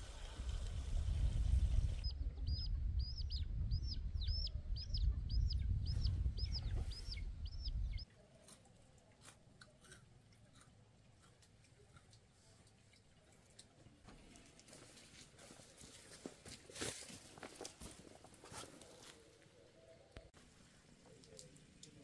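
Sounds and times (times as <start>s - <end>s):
chick peeping: 2.0s - 8.0s.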